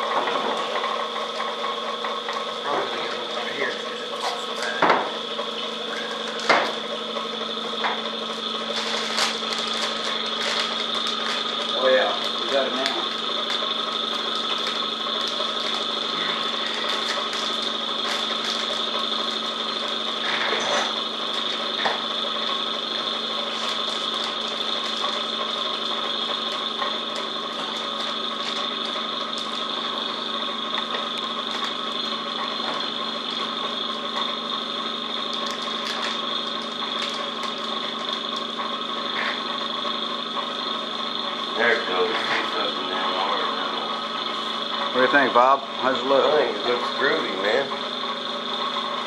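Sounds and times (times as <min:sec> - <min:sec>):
vacuum pump running: 0:00.0 - 0:49.0
plastic bag handling noises: 0:08.3 - 0:20.1, 0:23.4 - 0:30.0, 0:35.3 - 0:38.6.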